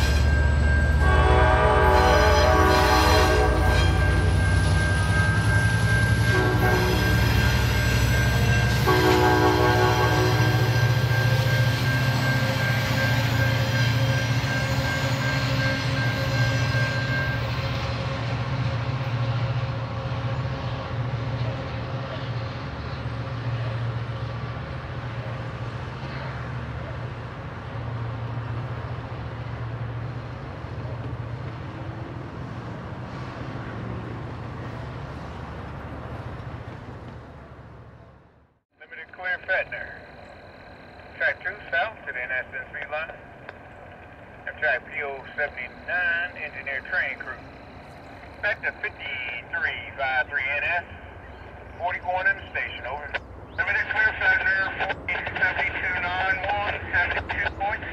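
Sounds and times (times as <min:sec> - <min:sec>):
crossing warning bell ringing: 0:00.0 - 0:19.2, 0:38.8 - 0:51.8
train wheel noise: 0:00.0 - 0:38.3, 0:39.2 - 0:57.9
diesel locomotive engine rumble: 0:00.0 - 0:57.9
locomotive air horn: 0:00.9 - 0:21.4.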